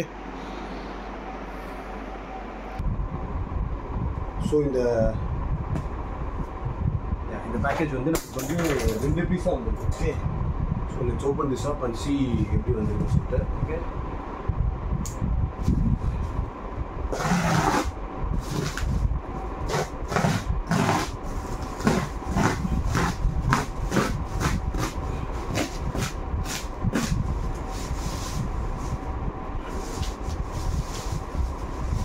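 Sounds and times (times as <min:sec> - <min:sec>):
steady low hum: 0:00.0 - 0:32.0
blade scraping plastic: 0:17.1 - 0:18.9, 0:19.7 - 0:27.2.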